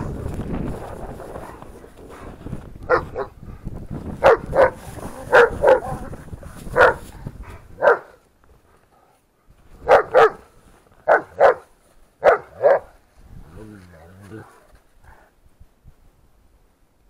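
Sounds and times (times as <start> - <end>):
dogs barking: 2.9 - 3.4, 4.2 - 6.1, 6.7 - 7.1, 7.8 - 8.2, 9.8 - 13.0.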